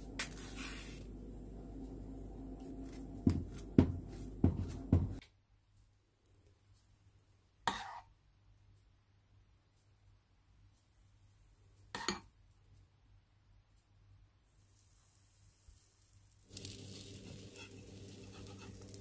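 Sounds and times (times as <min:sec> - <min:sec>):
low background hum: 0:00.0 - 0:07.6, 0:16.4 - 0:19.0.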